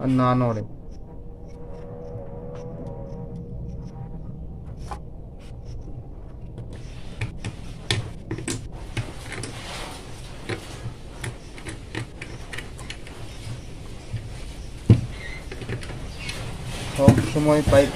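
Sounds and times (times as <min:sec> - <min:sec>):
scraping: 0:00.0 - 0:17.9
steady low hum: 0:00.0 - 0:17.9.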